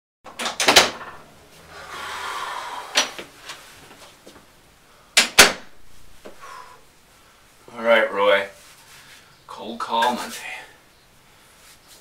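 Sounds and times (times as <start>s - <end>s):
cabinet door clacking shut: 0.3s - 1.1s
cabinet door clicks and knocks: 0.3s - 1.1s.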